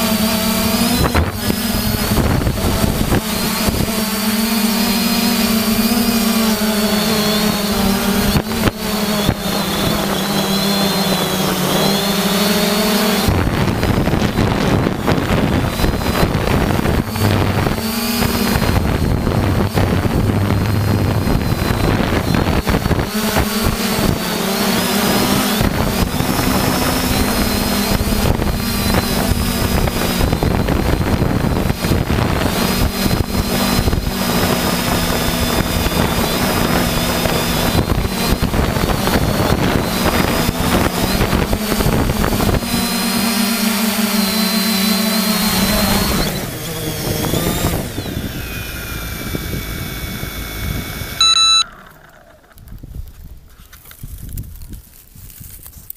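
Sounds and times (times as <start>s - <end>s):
loud electronic tone: 0.0s - 31.6s, 47.8s - 52.2s
wind on microphone: 0.0s - 51.6s, 52.6s - 55.9s
drone propellers whirring: 0.0s - 53.2s.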